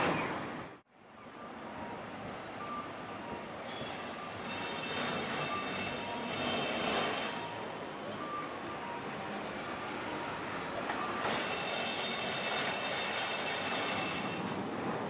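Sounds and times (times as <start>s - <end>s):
streetcar rolling on rails: 0.0s - 15.0s
faint wheel squeal: 3.6s - 8.5s.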